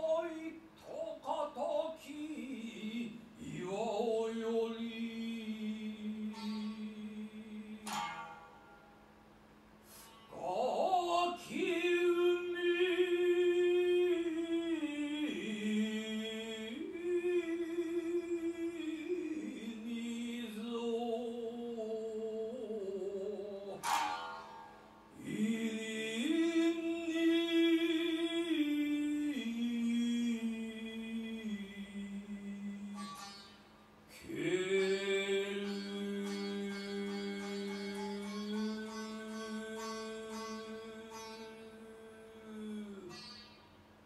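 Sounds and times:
plucked lute strikes: 0:07.7 - 0:09.1, 0:23.7 - 0:25.1
man chanting long held notes: 0:34.2 - 0:43.4.

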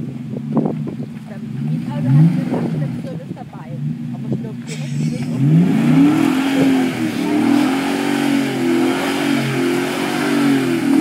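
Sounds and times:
truck engine revving hard: 0:00.0 - 0:11.0.

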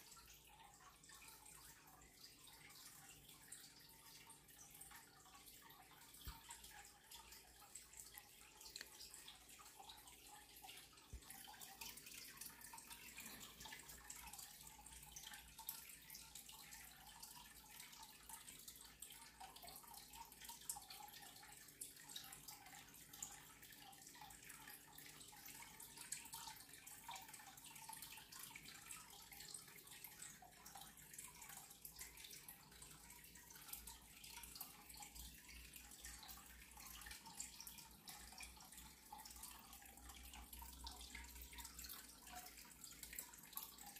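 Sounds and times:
soft irregular ticking: 0:00.0 - 0:20.6.

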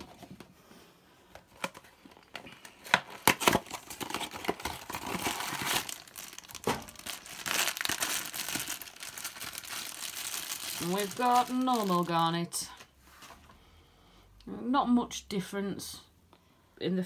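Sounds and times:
foil bag crinkling: 0:02.5 - 0:12.8
cardboard box tearing: 0:03.1 - 0:06.4.

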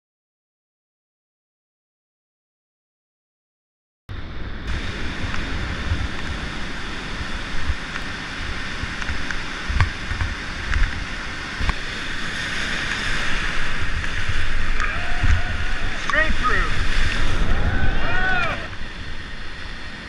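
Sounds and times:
wind rumbling on microphone: 0:04.1 - 0:20.0
whitewater rapids rushing: 0:04.7 - 0:20.0.

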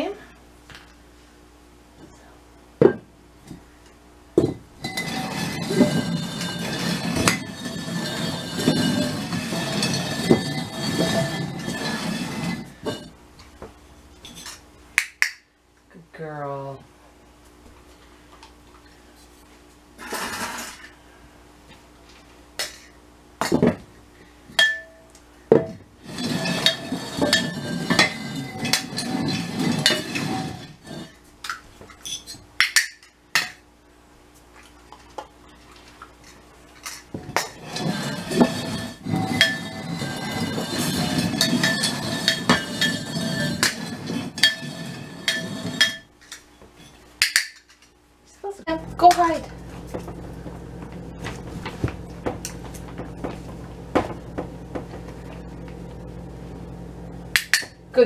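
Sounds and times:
terracotta pots clinking and scraping: 0:04.8 - 0:13.1, 0:26.0 - 0:31.2, 0:36.8 - 0:47.0.

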